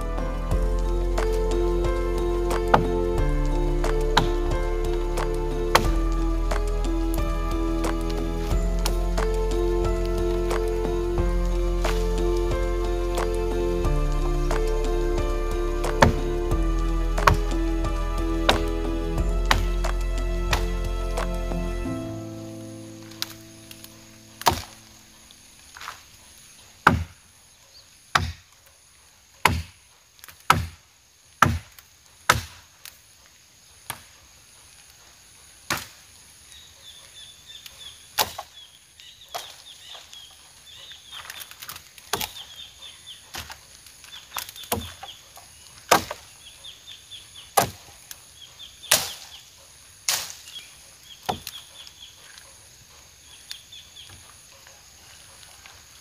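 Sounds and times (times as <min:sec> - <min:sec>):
machete chopping branches: 0:15.9 - 0:16.3, 0:17.2 - 0:17.6, 0:24.4 - 0:24.8, 0:26.8 - 0:27.2, 0:28.1 - 0:28.5, 0:29.4 - 0:30.8, 0:31.4 - 0:32.7, 0:35.7 - 0:36.0, 0:38.2 - 0:38.5, 0:41.3 - 0:42.5, 0:44.4 - 0:45.1, 0:45.8 - 0:46.3, 0:47.5 - 0:48.0, 0:48.9 - 0:49.4, 0:50.1 - 0:51.6.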